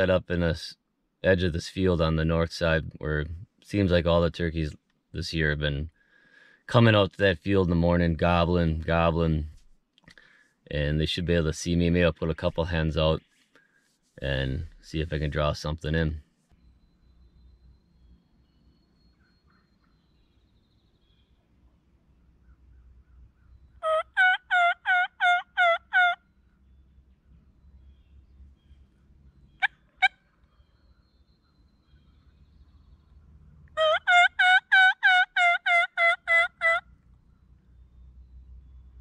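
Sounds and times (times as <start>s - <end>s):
turkey clucks: 23.8s - 26.2s, 33.7s - 36.9s
turkey yelping: 23.8s - 26.2s, 29.6s - 30.7s, 33.7s - 37.0s.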